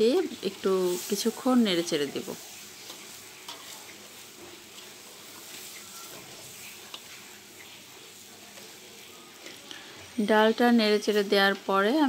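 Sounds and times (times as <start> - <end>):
food sizzling in oil: 0.0 - 12.0
spatula scraping and tapping pan: 1.7 - 10.2.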